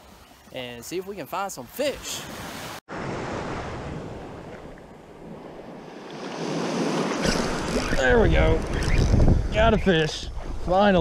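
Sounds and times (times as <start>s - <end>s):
small waves breaking on sand: 2.0s - 7.9s.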